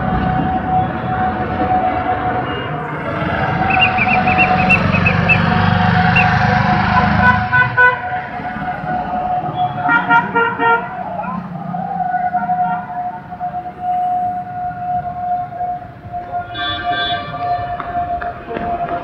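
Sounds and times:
engine rumble: 0:00.0 - 0:13.5
vehicle horns honking: 0:01.8 - 0:11.4, 0:12.1 - 0:18.1
steady high tone: 0:01.9 - 0:09.5.

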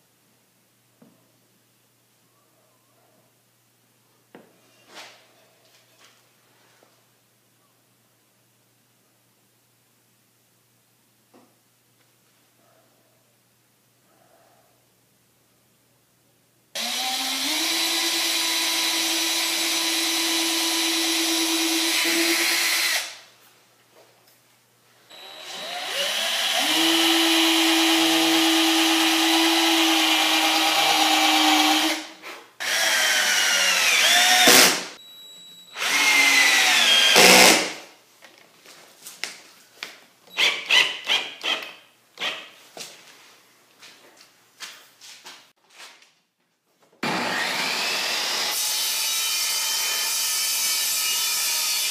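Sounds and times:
cordless drill running: 0:16.8 - 0:23.2, 0:25.1 - 0:32.0, 0:32.6 - 0:34.8, 0:35.8 - 0:37.7.

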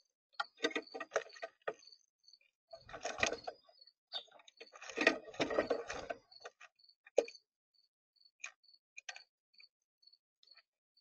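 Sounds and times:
birds clattering and scuffling: 0:00.4 - 0:02.0, 0:02.7 - 0:07.4.

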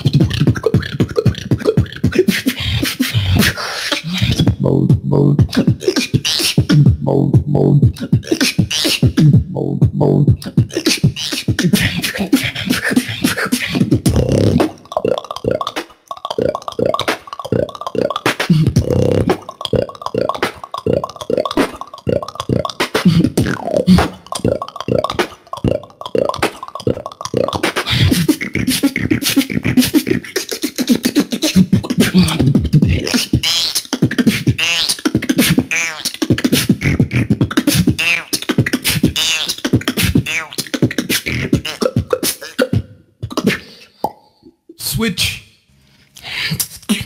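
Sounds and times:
beatbox mouth percussion: 0:00.0 - 0:44.8, 0:46.2 - 0:47.0
wavering pitched vocal tones: 0:00.0 - 0:44.8.

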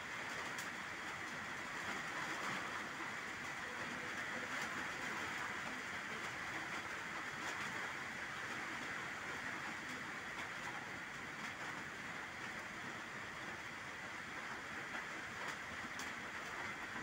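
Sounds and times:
rain on water and leaves: 0:00.0 - 0:17.0.

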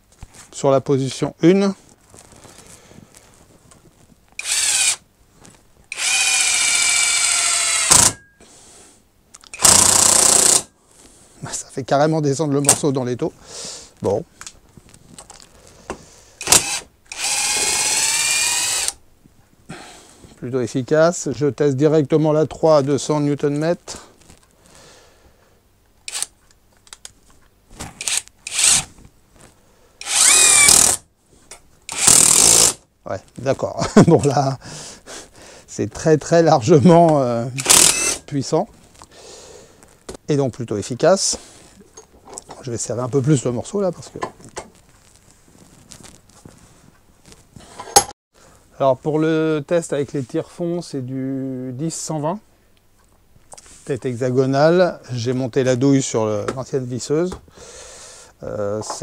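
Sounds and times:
impact driver driving a screw: 0:04.4 - 0:05.0, 0:05.9 - 0:08.2, 0:09.5 - 0:10.7, 0:16.4 - 0:19.0, 0:26.1 - 0:26.3, 0:28.0 - 0:28.9, 0:30.0 - 0:31.0, 0:31.9 - 0:32.8, 0:37.6 - 0:38.2.

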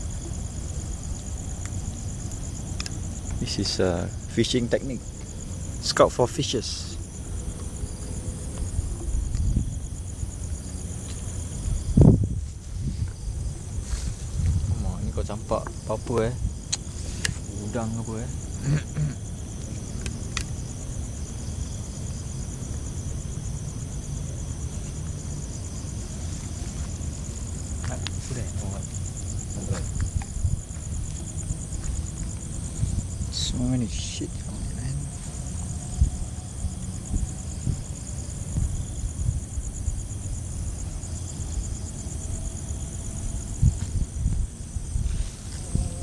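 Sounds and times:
insects trilling: 0:00.0 - 0:46.0
microphone handling rumble: 0:11.6 - 0:16.8, 0:27.9 - 0:33.4.

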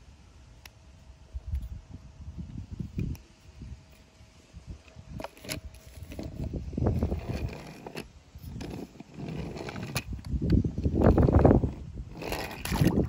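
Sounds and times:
toy truck rolling on wooden track: 0:06.9 - 0:10.3, 0:11.1 - 0:13.0.

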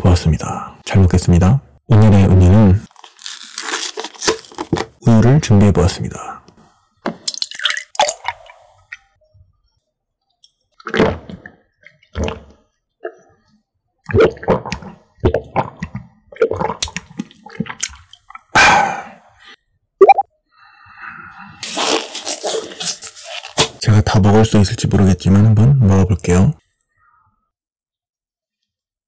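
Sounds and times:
person gulping milk: 0:07.2 - 0:09.0, 0:10.8 - 0:13.2, 0:14.1 - 0:19.1
loud breath out: 0:18.6 - 0:19.6.

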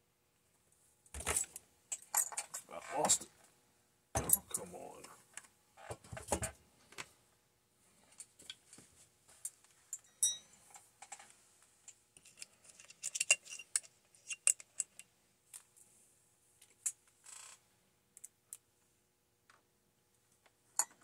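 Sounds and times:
plastic parts clicking and knocking: 0:12.2 - 0:15.7.

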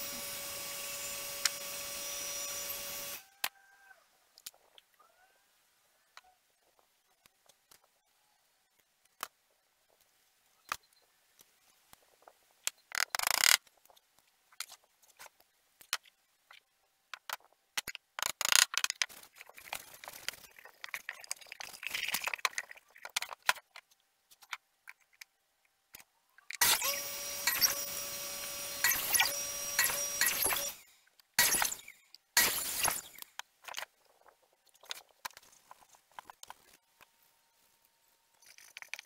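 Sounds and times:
miter saw motor starting: 0:00.0 - 0:03.3, 0:26.6 - 0:33.2.

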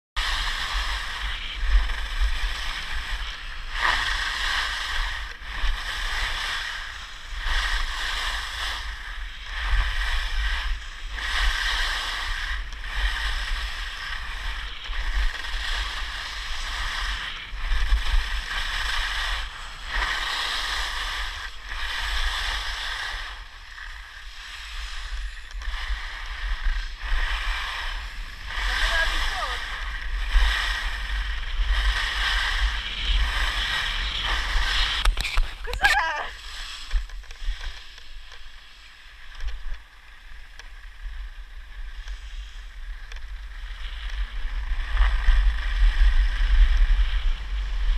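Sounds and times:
wind on microphone: 0:00.2 - 0:38.4, 0:40.5 - 0:47.9
skis scraping over snow: 0:00.2 - 0:47.9.

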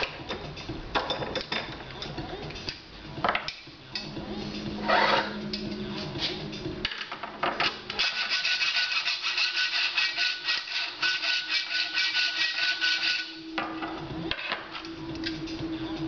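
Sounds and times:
hacksaw scraping metal: 0:04.8 - 0:05.4, 0:07.6 - 0:13.5.

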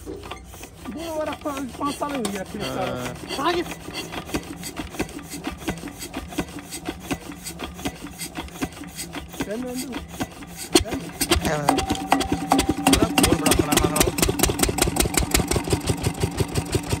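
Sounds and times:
diesel engine cranked by hand: 0:00.0 - 0:17.0
engine knock: 0:00.8 - 0:17.0.

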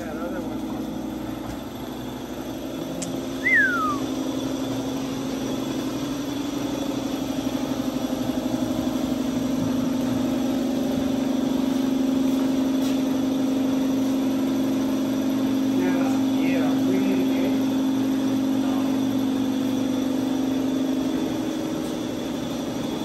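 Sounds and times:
engine running steadily: 0:00.0 - 0:23.0
short falling whistle: 0:03.4 - 0:04.2.

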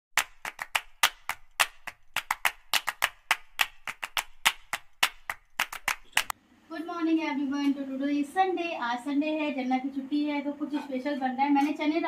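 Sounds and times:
percussive clap-like hits: 0:00.2 - 0:06.3.

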